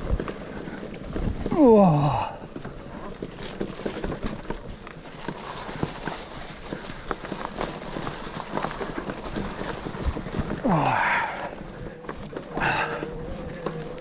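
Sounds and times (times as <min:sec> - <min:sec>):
bike rattling over bumps: 0:00.0 - 0:14.0
bike tyres rolling on dirt: 0:00.0 - 0:14.0.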